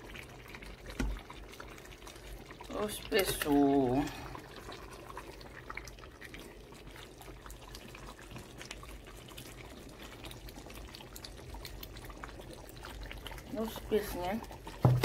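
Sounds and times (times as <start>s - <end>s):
soup bubbling in a pot: 0.0s - 15.0s.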